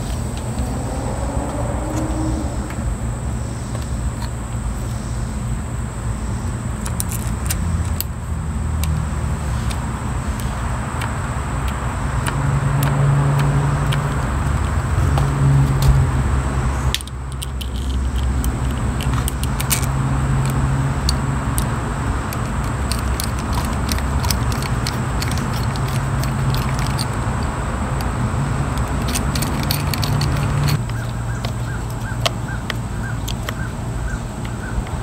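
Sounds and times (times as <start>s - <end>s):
screwdriver and metal parts clicking: 6.8s - 8.1s, 16.9s - 28.1s, 28.7s - 33.6s.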